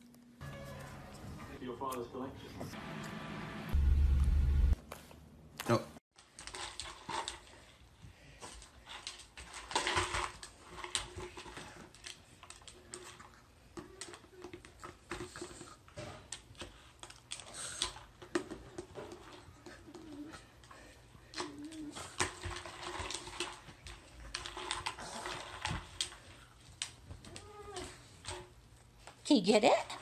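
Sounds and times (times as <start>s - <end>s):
plastic jar rolling on a rug: 6.2s - 16.4s, 17.8s - 28.6s.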